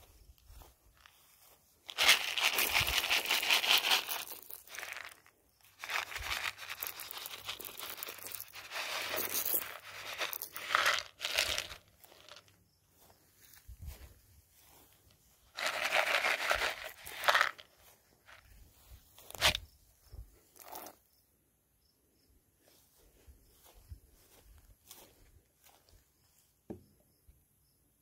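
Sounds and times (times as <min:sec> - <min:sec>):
corn pouring onto dry grass: 0:01.1 - 0:19.7, 0:20.5 - 0:21.0.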